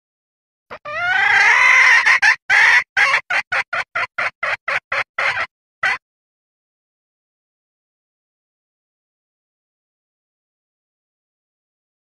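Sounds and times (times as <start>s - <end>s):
hen clucking: 0.7s - 6.0s
junglefowl hen calling: 0.7s - 6.0s.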